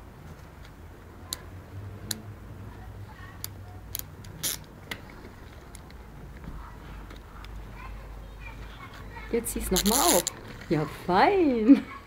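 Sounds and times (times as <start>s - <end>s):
toy crackle: 3.4s - 4.7s, 9.6s - 10.7s.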